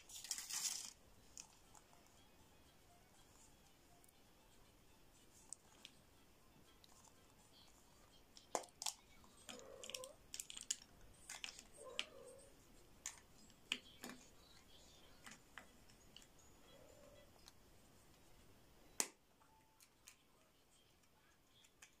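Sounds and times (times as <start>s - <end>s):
chocolate ball cracking: 8.3s - 12.2s.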